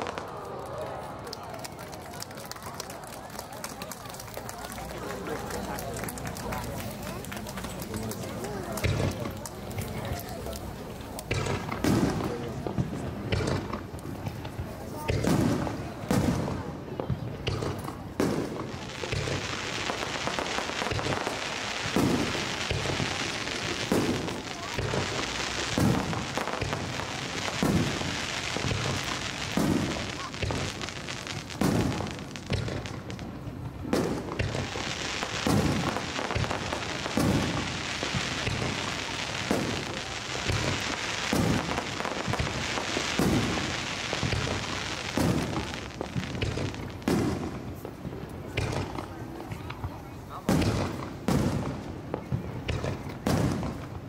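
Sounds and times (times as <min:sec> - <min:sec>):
fireworks crackling: 0:00.0 - 0:54.0
low firework booms: 0:07.9 - 0:54.0.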